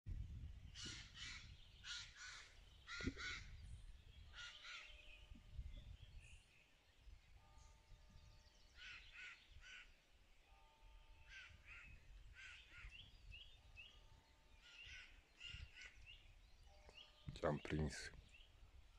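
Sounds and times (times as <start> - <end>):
crows cawing: 0.8 - 3.6, 4.3 - 5.0, 8.8 - 10.0, 11.3 - 13.0, 14.6 - 16.0.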